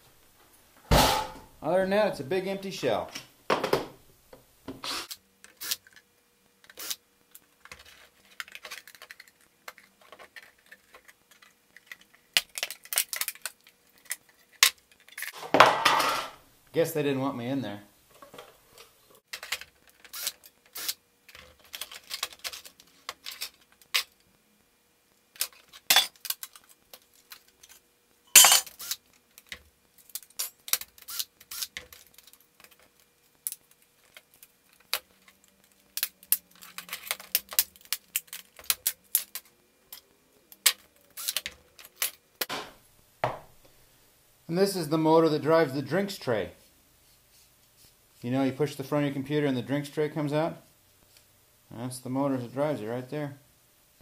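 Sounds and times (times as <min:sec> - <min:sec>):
small parts clicking and clattering: 0:05.0 - 0:15.4, 0:18.4 - 0:24.3, 0:25.3 - 0:42.5.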